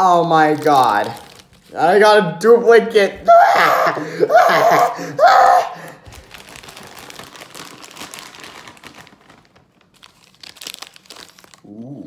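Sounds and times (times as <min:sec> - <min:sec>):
plastic wrapper crinkling and tearing: 0:00.0 - 0:02.0, 0:05.8 - 0:12.0
person exclaiming loudly: 0:03.0 - 0:05.9.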